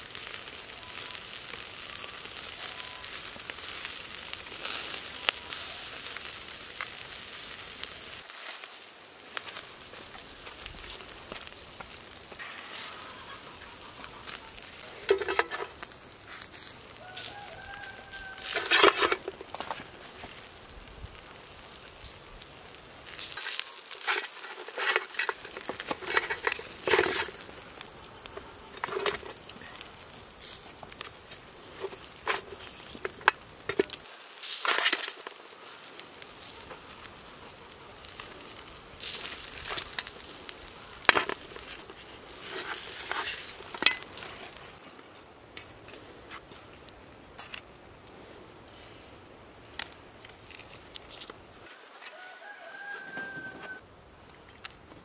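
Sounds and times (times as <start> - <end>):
meat scraping off skewers: 1.4 - 20.5, 21.2 - 44.8.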